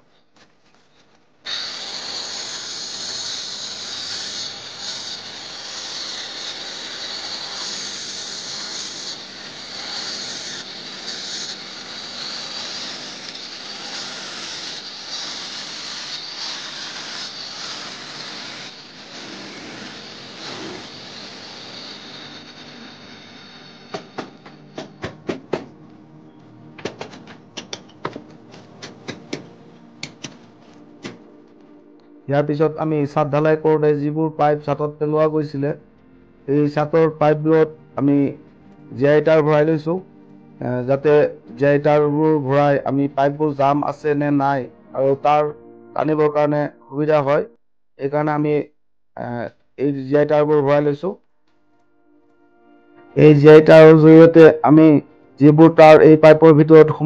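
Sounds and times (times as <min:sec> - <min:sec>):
angle grinder cutting brick: 0:01.5 - 0:25.1
hammer striking chisel on brick: 0:28.8 - 0:30.4.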